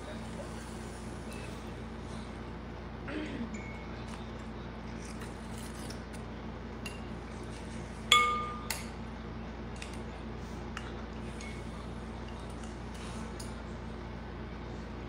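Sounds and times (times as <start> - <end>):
spoon clinking on glass bowl: 8.1 - 8.9.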